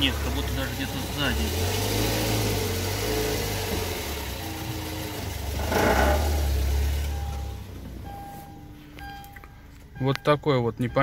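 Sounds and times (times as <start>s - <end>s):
car engine pulling away: 0.0s - 8.5s.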